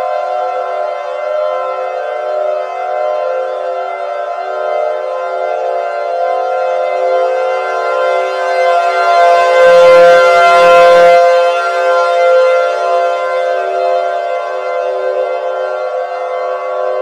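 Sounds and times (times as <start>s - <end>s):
civil defense siren: 0.0s - 17.0s.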